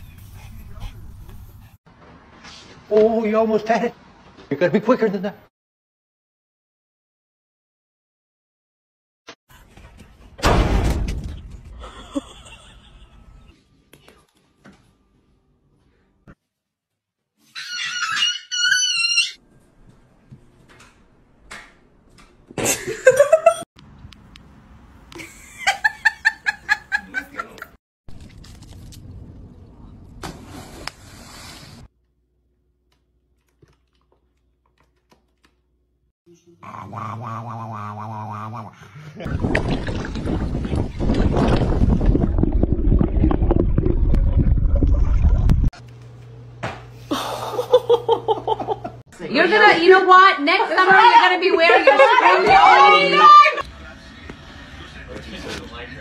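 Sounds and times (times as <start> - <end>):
person laughing: 11.8 - 13.4, 25.2 - 27.7, 47.0 - 49.0
water sloshing and splashing: 39.3 - 45.7.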